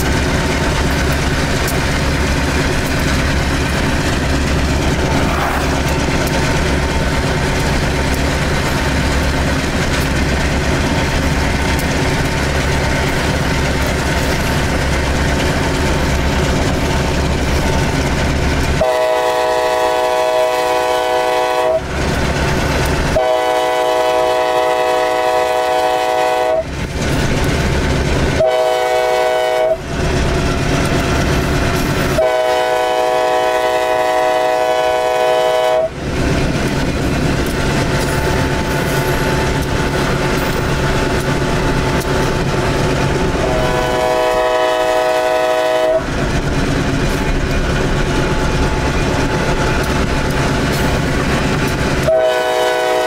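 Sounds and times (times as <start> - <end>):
diesel locomotive engine drone: 0.0 - 53.0
train horn blasts: 18.8 - 21.9, 23.1 - 26.7, 28.4 - 29.9, 32.1 - 36.0, 43.4 - 46.2, 52.0 - 53.0.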